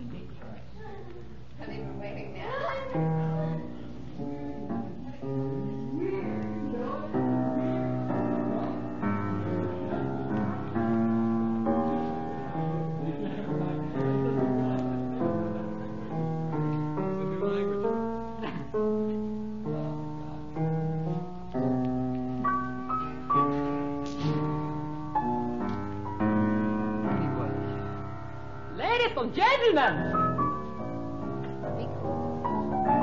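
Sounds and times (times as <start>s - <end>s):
piano chords: 1.4s - 33.0s.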